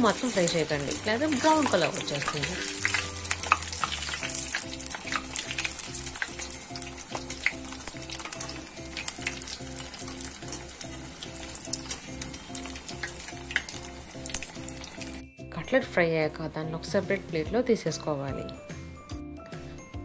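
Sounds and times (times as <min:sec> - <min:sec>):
wire strainer moving in oil: 0:00.0 - 0:15.1
food deep-frying in oil: 0:00.0 - 0:15.3
background music: 0:00.0 - 0:20.0.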